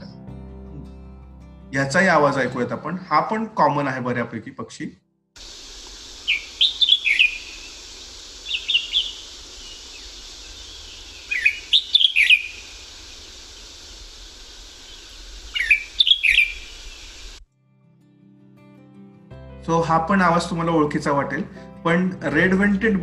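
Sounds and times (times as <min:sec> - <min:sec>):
faint recording hiss: 0:05.4 - 0:17.4
bird calling with whistled notes: 0:05.5 - 0:17.4.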